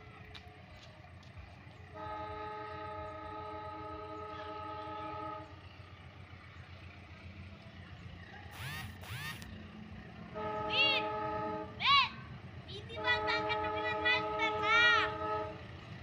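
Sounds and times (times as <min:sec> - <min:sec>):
locomotive air horn blast: 0:01.9 - 0:05.6, 0:10.3 - 0:11.8, 0:13.0 - 0:15.7.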